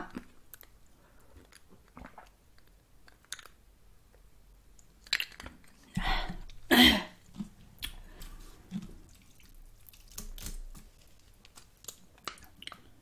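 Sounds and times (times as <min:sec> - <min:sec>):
soft chewing: 0:00.0 - 0:13.0.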